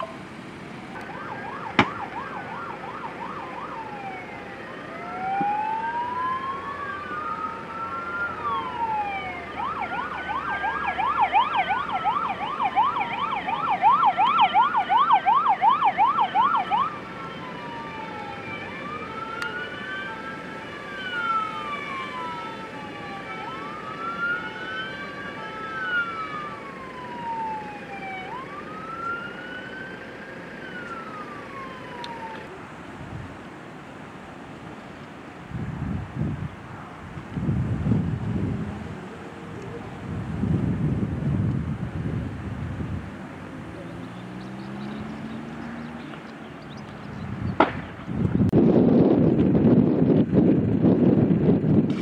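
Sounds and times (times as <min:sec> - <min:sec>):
fainter siren wailing: 0:00.9 - 0:32.6
loud siren wailing: 0:00.9 - 0:32.6.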